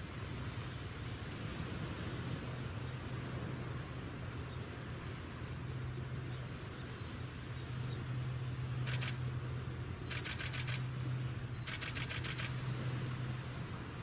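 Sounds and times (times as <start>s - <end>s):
low hum and hiss: 0.0s - 14.0s
rapid camera shutter clicks: 8.8s - 9.2s, 10.1s - 10.9s, 11.6s - 12.6s.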